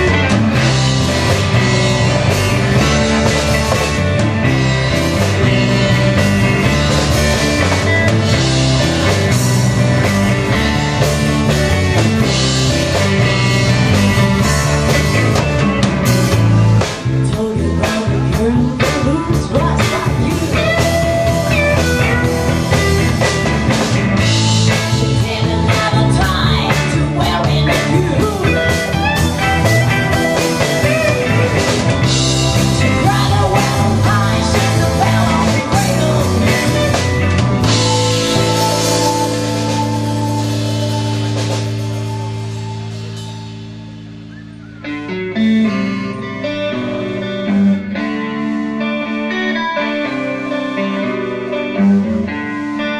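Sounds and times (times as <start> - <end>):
bass: 0.0 - 52.9
drum kit: 0.0 - 52.9
electric guitars: 0.0 - 52.9
keyboards: 0.0 - 52.9
woman singing: 17.2 - 21.6, 24.9 - 29.0, 32.8 - 37.0.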